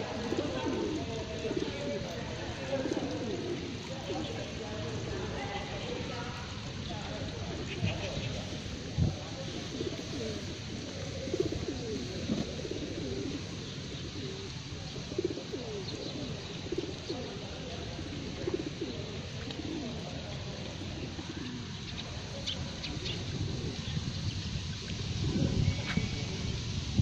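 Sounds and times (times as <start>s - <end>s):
pigeons cooing: 0.0s - 24.4s.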